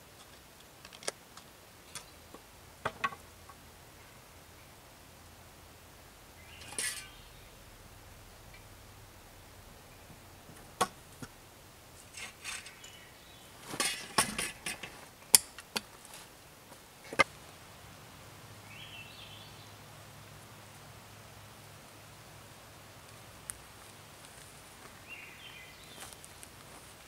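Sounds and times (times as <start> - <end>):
wooden poles and tools knocking: 2.8 - 3.6, 6.6 - 7.1, 13.6 - 15.9
rustling: 6.4 - 17.6.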